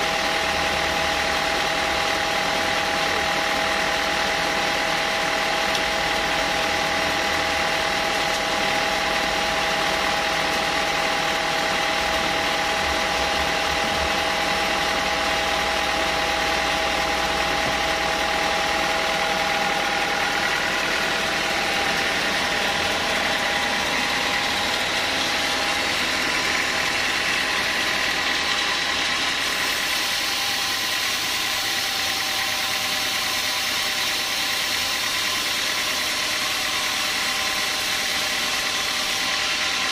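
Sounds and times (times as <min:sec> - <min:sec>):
band sawmill whining: 0:00.0 - 0:39.9.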